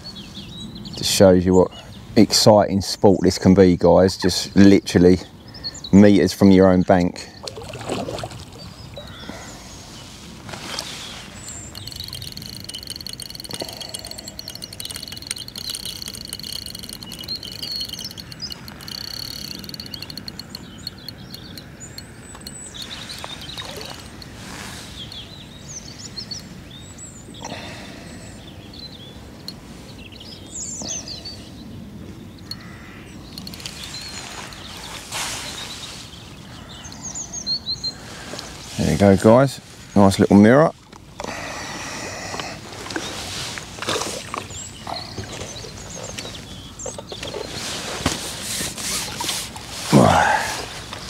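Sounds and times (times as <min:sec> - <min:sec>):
small birds chirping: 0:00.0 - 0:40.4, 0:42.2 - 0:51.0
fishing reel ticking: 0:11.4 - 0:25.3, 0:32.4 - 0:34.9.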